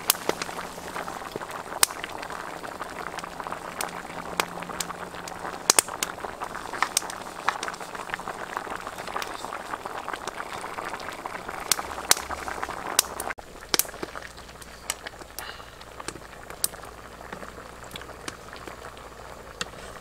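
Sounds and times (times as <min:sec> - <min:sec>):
soup boiling in a wok: 0:00.0 - 0:20.0
sharp pops: 0:04.4 - 0:08.1, 0:12.9 - 0:18.8.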